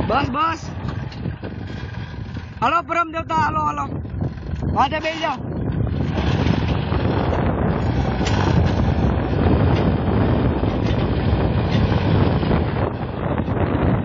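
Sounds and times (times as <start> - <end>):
tractor diesel engine running: 0.0 - 14.0
wind buffeting microphone: 0.0 - 14.0.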